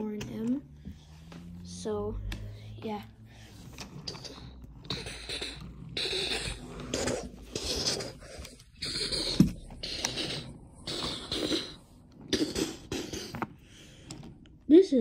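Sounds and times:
toy train rolling on wooden track: 3.5s - 11.8s.

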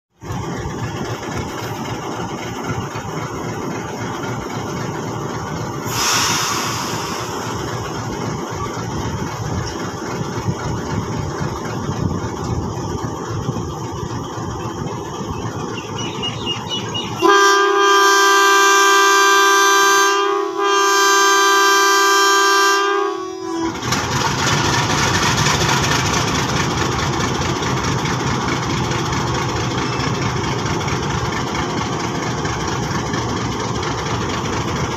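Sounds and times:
diesel locomotive running: 0.1s - 34.9s
air brake hiss: 5.8s - 7.8s
multi-tone air horn blasts: 17.2s - 23.9s.

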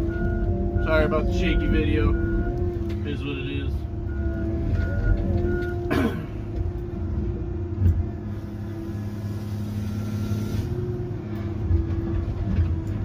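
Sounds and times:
diesel engine and hydraulics running: 0.0s - 13.0s.

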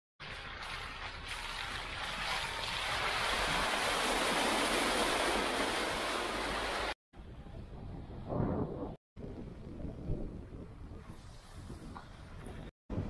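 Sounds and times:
tyres splashing through mud: 0.2s - 7.0s.

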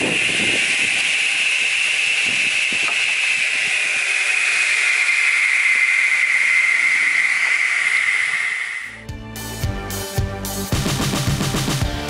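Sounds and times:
saw blade coasting down: 0.0s - 9.0s.

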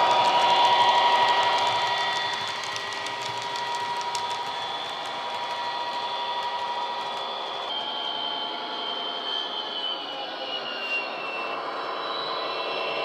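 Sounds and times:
train wheels clicking on track: 0.0s - 8.4s
model locomotive engine whine: 0.0s - 13.0s.

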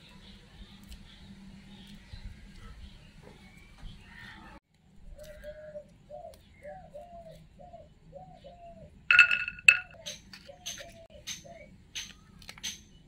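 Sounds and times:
garlic cloves clattering into steel bowl: 9.1s - 10.0s.

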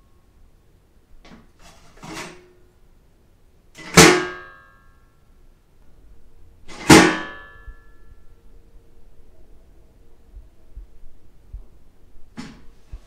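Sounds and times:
garbage can lid banging shut: 3.8s - 4.5s, 6.7s - 7.5s, 12.4s - 12.6s.

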